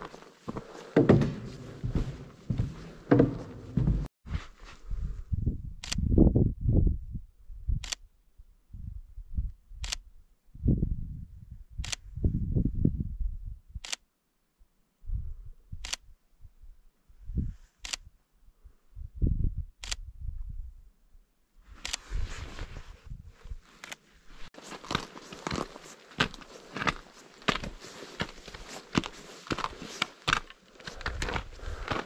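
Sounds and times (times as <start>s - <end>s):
low thumps and rumble: 1.0s - 4.1s.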